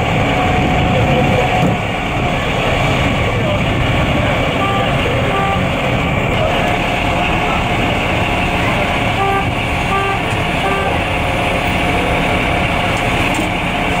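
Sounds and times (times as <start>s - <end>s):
diesel engine running: 0.0s - 14.0s
short electronic beeps: 4.6s - 5.7s, 9.2s - 11.0s.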